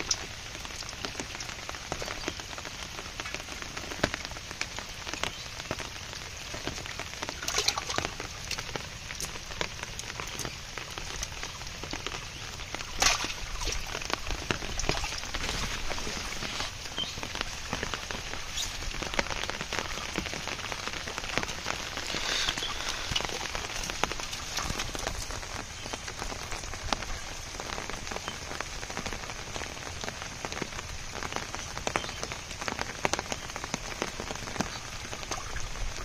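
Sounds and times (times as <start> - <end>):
steady rain falling: 0.0 - 36.0.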